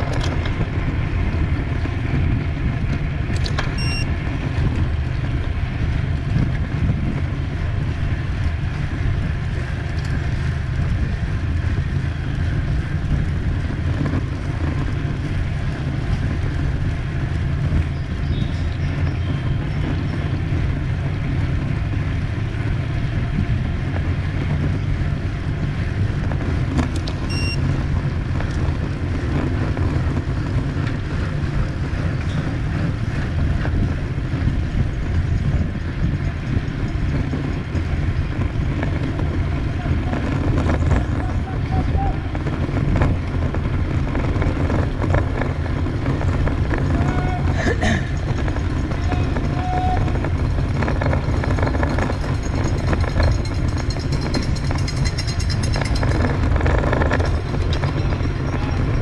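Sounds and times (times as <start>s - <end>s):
wind rush on microphone: 0.0s - 59.0s
short high beeps: 3.7s - 4.1s, 27.3s - 27.6s.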